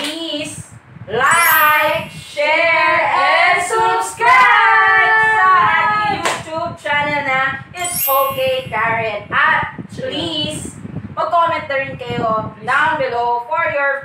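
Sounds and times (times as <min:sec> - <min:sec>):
voices singing together: 0:01.3 - 0:06.2.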